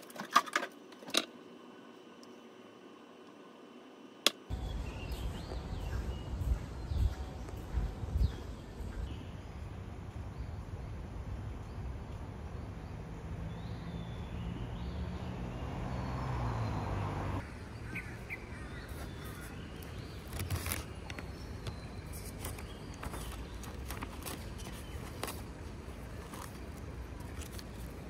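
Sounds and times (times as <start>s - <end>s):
steady low hum: 0.3s - 28.0s
birds chirping: 4.5s - 28.0s
notebook pages rustling: 18.9s - 28.0s.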